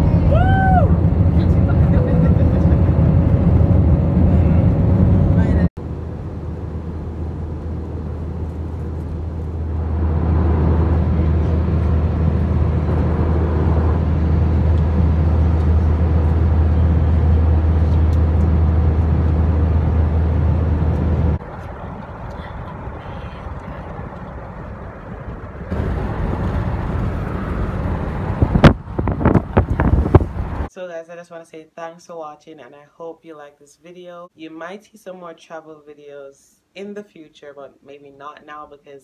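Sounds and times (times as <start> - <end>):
aircraft cabin engine drone: 0.0 - 30.7.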